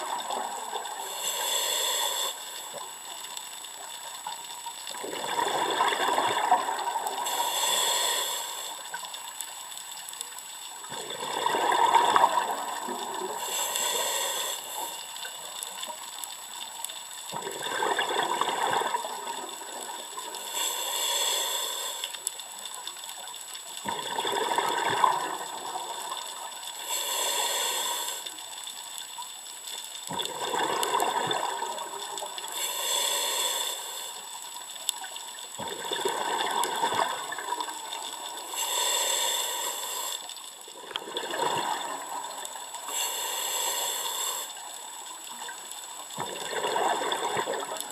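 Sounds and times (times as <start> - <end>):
regulator hiss on inhalation: 0.0 - 16.2, 18.6 - 23.0, 25.1 - 29.0, 30.6 - 35.4, 37.7 - 41.0, 41.7 - 45.9
bubbly exhaled air rush: 5.0 - 8.7, 10.9 - 14.9, 35.6 - 37.6, 46.2 - 47.9.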